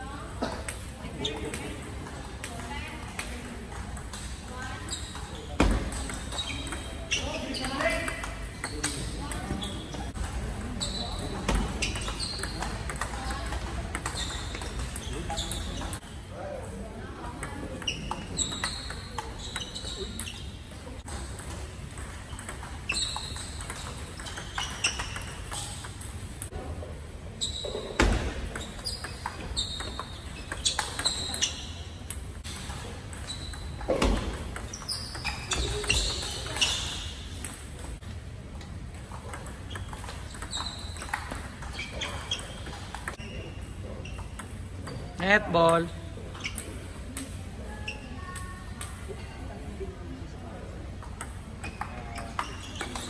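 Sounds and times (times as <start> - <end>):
shoe squeaks: 4.5 - 16.1, 17.8 - 20.9, 22.0 - 25.9, 27.3 - 37.4, 39.3 - 45.2, 46.3 - 47.0, 47.7 - 48.4, 51.6 - 53.0.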